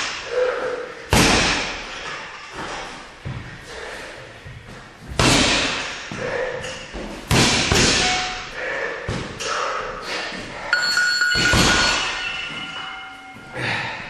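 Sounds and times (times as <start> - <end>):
boxing gloves punching bag thuds: 5.1 - 5.9, 7.3 - 8.3
steady high tone: 10.7 - 14.0.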